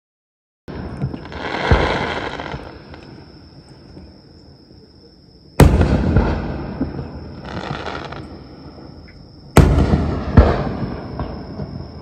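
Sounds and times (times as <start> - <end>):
fireworks bursting: 0.7 - 3.3, 5.6 - 8.8, 9.5 - 12.0.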